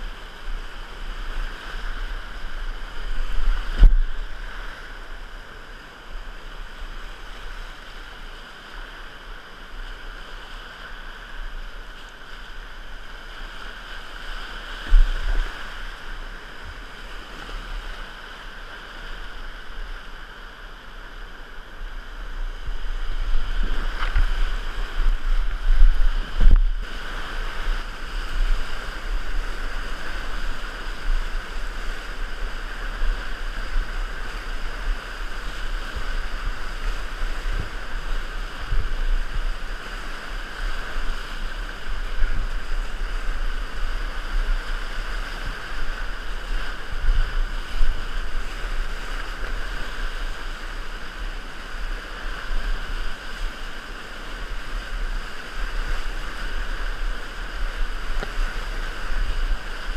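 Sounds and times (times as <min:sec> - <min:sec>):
whitewater rapids rushing: 0:00.0 - 0:59.9.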